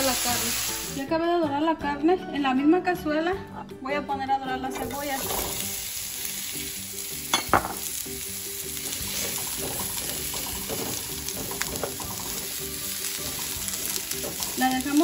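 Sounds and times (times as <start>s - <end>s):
onions sizzling in oil: 0.0s - 1.0s, 4.8s - 15.0s.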